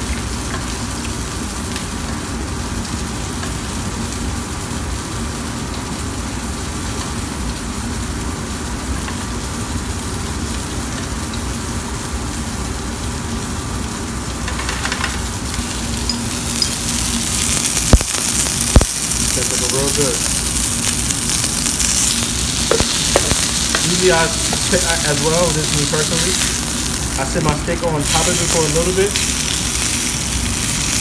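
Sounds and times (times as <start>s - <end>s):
steak sizzling in skillet: 13.6s - 31.0s.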